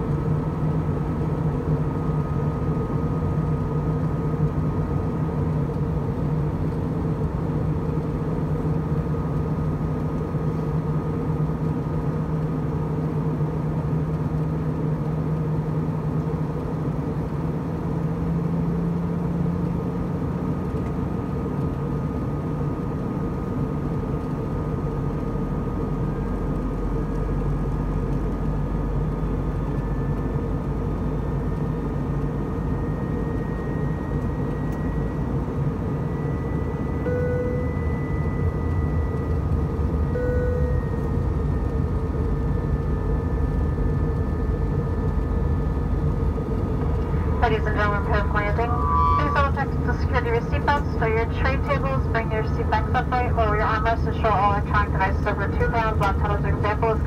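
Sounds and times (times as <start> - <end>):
jet engine hum: 0.0 - 57.0
deep rumble: 24.7 - 57.0.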